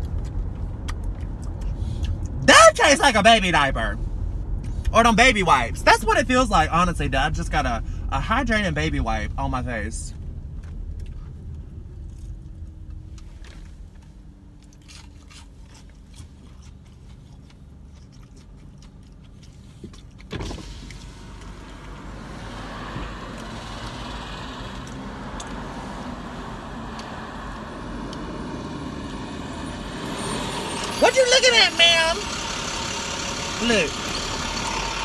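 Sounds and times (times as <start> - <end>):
car road and engine rumble: 0.0 - 35.0.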